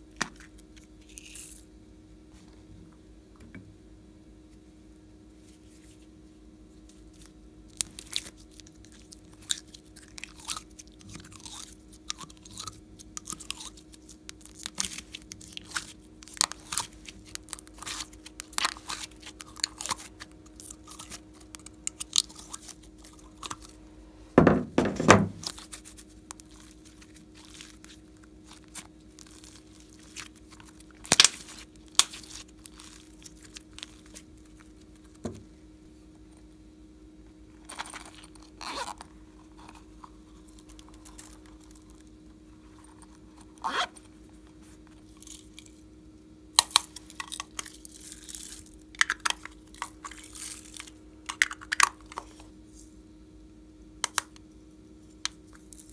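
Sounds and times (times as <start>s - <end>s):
faint steady hum: 0.0s - 55.9s
sticky slime clicks and crackles: 7.7s - 23.7s, 26.3s - 34.7s, 54.0s - 54.4s.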